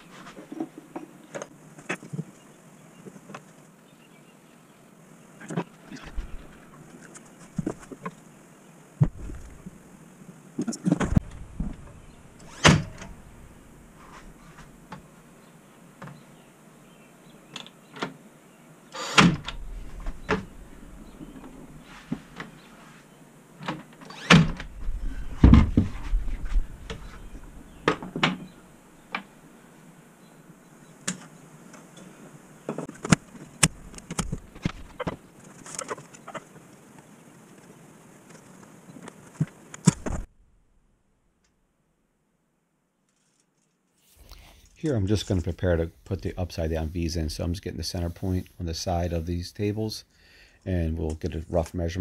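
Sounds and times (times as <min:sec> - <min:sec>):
heavy thuds: 0:09.0 - 0:09.8, 0:24.5 - 0:28.5.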